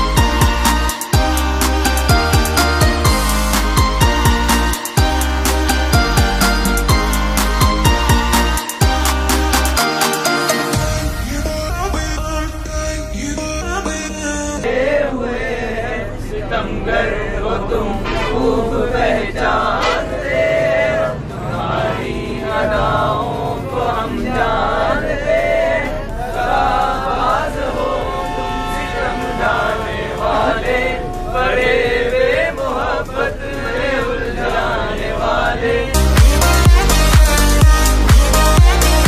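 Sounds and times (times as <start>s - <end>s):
young men singing unaccompanied: 10.5s - 39.0s.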